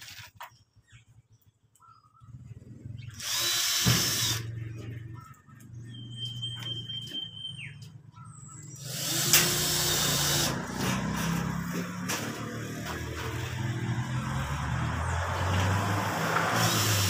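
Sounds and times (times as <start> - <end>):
electric drill driving screws: 3.1 - 4.5, 8.8 - 13.4, 15.5 - 17.0.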